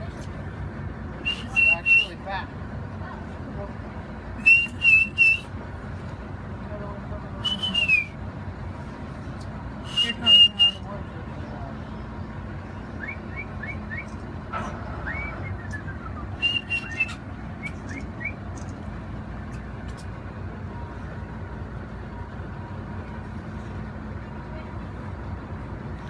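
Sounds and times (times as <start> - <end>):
boat engine humming: 0.0 - 26.0
sharp human whistles: 1.2 - 2.1, 4.4 - 5.5, 7.4 - 8.2, 9.8 - 10.8, 15.0 - 18.4.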